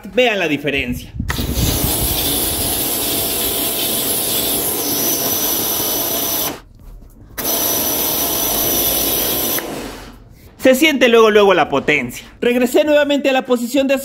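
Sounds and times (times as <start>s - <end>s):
pressure washer spraying: 1.3s - 6.6s, 7.4s - 10.0s.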